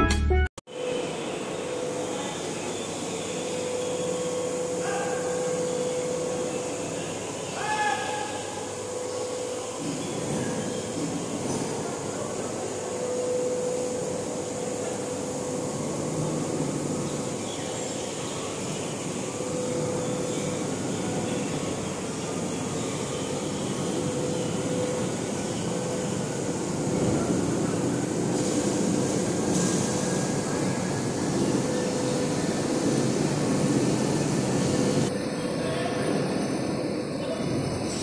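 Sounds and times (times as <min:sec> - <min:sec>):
workshop machinery humming: 0:00.0 - 0:38.0
machine whining tone: 0:08.3 - 0:38.0.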